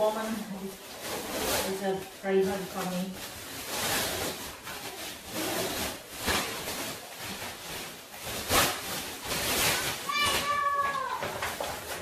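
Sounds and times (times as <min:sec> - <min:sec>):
fabric bag rustling: 0:00.0 - 0:12.0.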